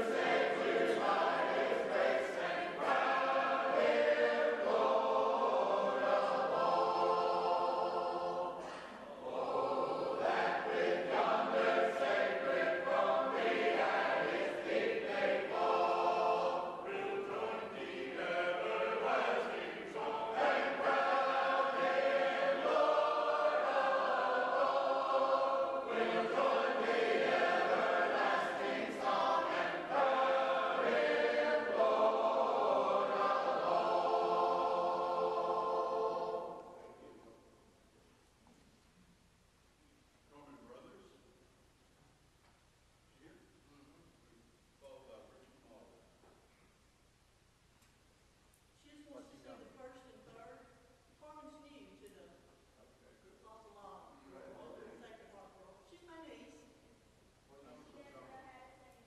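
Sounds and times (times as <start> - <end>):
group singing a hymn unaccompanied: 0.0 - 37.5.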